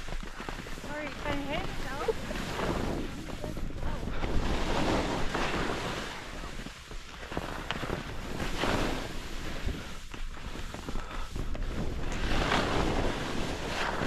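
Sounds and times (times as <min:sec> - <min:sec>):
skis scraping through snow: 0:00.0 - 0:14.0
wind buffeting microphone: 0:00.0 - 0:14.0.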